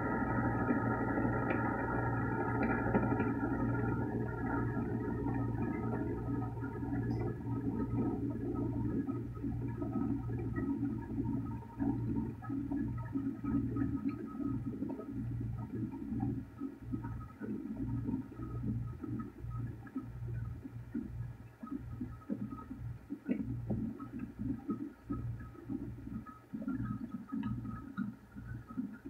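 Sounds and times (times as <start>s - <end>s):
fidget spinner spinning on wood: 0.0s - 9.2s.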